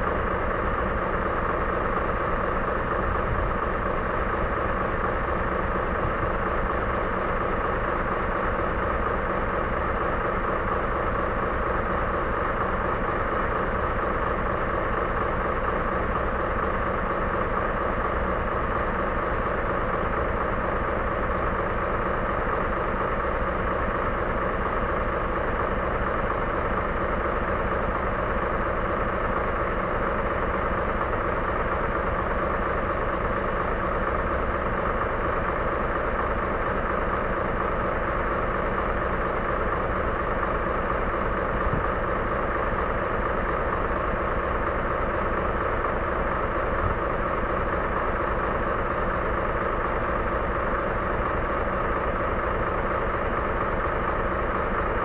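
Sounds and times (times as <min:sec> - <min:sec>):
heavy engine idling: 0:00.0 - 0:55.0.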